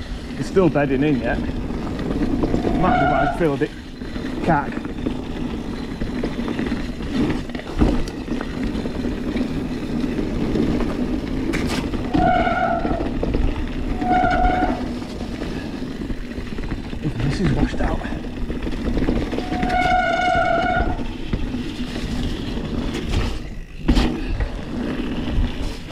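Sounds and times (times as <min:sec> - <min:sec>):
bike tyres rolling on gravel: 0:00.0 - 0:25.9
wind: 0:00.0 - 0:25.9
bike brakes squealing: 0:02.2 - 0:06.9, 0:12.0 - 0:13.2, 0:13.8 - 0:15.8, 0:19.2 - 0:21.2
knocks from rough ground: 0:04.1 - 0:25.9.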